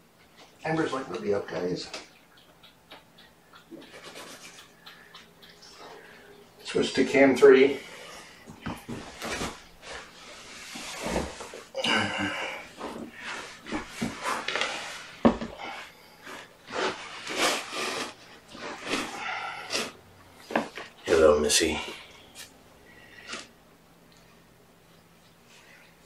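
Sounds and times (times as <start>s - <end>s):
clothing rustling: 5.5s - 21.0s.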